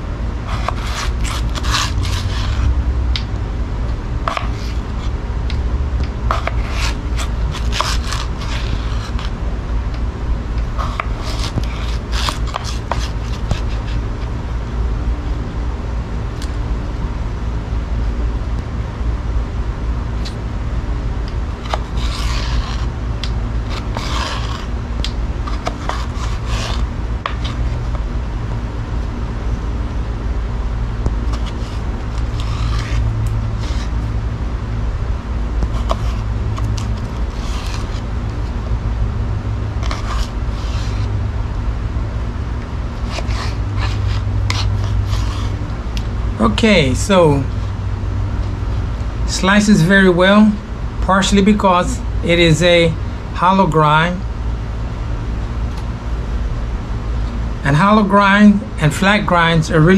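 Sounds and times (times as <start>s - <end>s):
steady low rumble: 0.0s - 59.9s
knife scraping potato: 0.4s - 2.7s, 4.3s - 5.6s, 6.3s - 9.4s, 10.7s - 14.2s, 21.6s - 28.0s, 31.2s - 34.1s, 35.6s - 38.1s, 39.8s - 41.2s, 43.0s - 47.7s.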